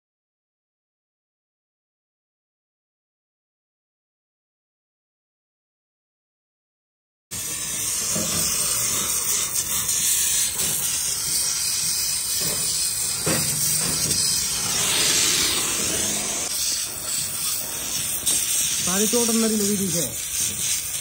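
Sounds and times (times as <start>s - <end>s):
welding torch flame hissing: 7.3s - 21.0s.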